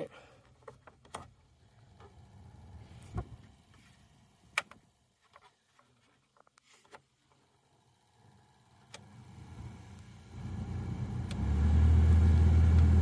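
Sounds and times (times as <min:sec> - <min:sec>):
blower motor hum: 0:01.5 - 0:04.9, 0:07.4 - 0:13.0.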